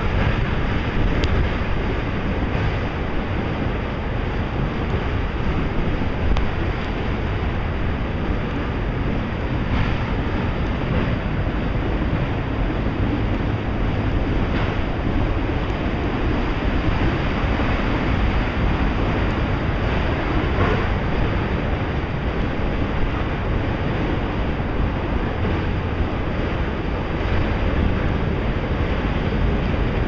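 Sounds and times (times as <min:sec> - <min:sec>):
freight train wheels rumbling: 0:00.0 - 0:30.0.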